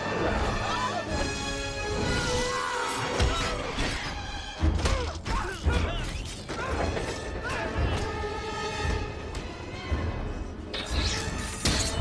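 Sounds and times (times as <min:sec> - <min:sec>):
orchestral film score: 0:00.0 - 0:12.0.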